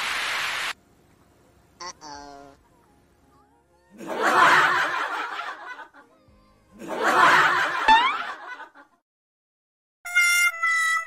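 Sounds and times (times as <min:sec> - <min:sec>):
laughter: 0:04.0 - 0:06.2, 0:06.8 - 0:09.0.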